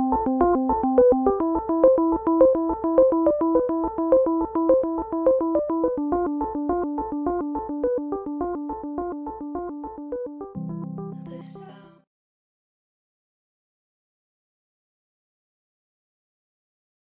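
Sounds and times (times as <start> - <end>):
electronic keyboard arpeggio: 0.0 - 11.8.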